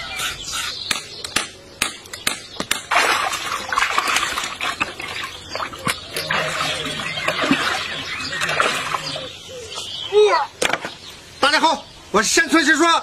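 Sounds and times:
water sloshing in steel basin: 0:02.8 - 0:09.3.

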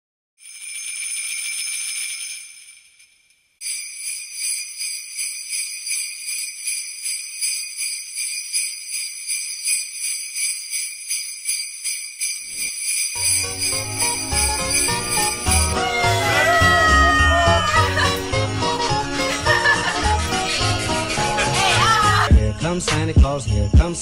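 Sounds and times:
sleigh bells jingling: 0:00.4 - 0:24.0.

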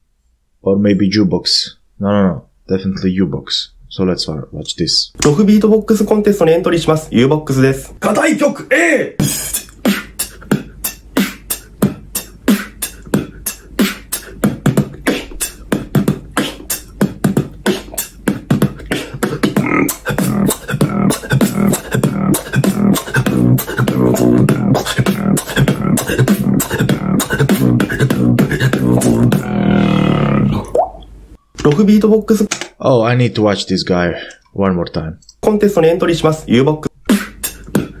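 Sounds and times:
beatboxing beat: 0:05.2 - 0:08.0, 0:09.2 - 0:30.8, 0:35.5 - 0:38.0
hummed bass line: 0:14.4 - 0:30.7.

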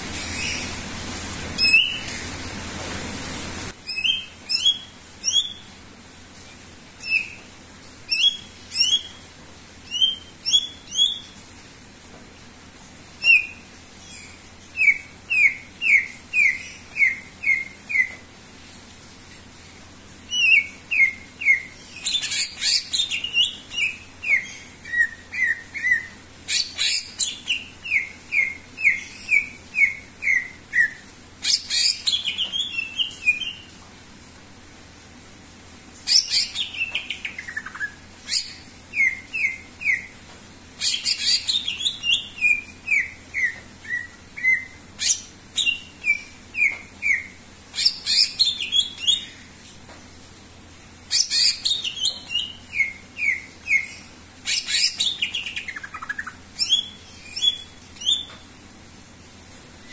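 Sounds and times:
bird singing whistled notes: 0:01.6 - 0:02.1, 0:03.9 - 0:05.7, 0:07.0 - 0:07.4, 0:08.1 - 0:09.2, 0:09.9 - 0:11.3, 0:20.3 - 0:33.7, 0:36.1 - 0:40.1, 0:40.8 - 0:49.4, 0:51.1 - 0:58.3.

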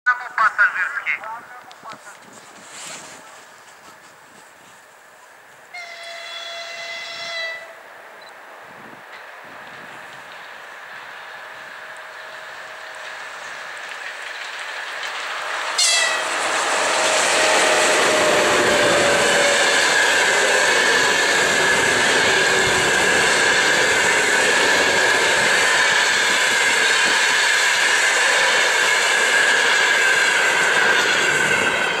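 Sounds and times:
train wheels whining on rails: 0:02.2 - 0:32.0
locomotive tone sliding down: 0:09.6 - 0:32.0.

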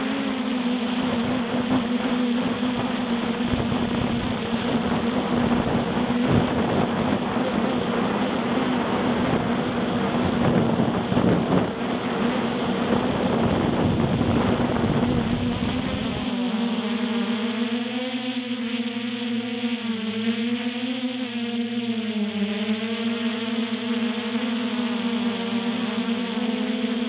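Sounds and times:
wind buffeting microphone: 0:00.0 - 0:16.8
drone propellers humming: 0:00.0 - 0:27.0.

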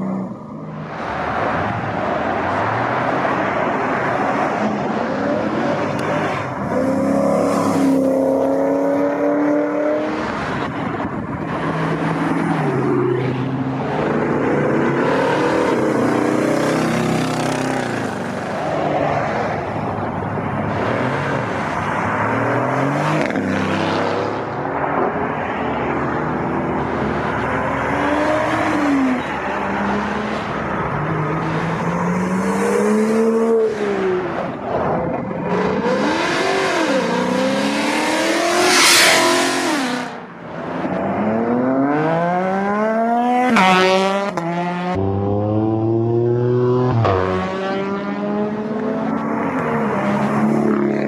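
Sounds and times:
performance cars accelerating: 0:00.0 - 0:51.0.

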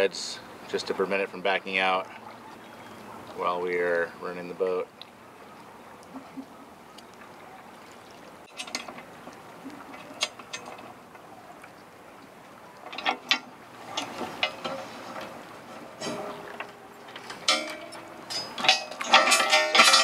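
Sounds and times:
metal chain clinking: 0:17.2 - 0:20.0.

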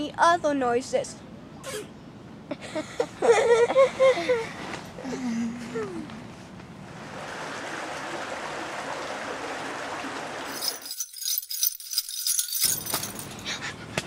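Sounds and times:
metallic jingling and rattling: 0:10.5 - 0:13.5.

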